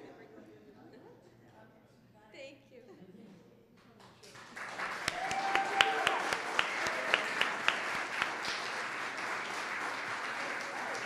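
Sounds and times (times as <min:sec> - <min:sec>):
close hand claps: 0:03.8 - 0:11.0
audience applauding: 0:04.2 - 0:11.0.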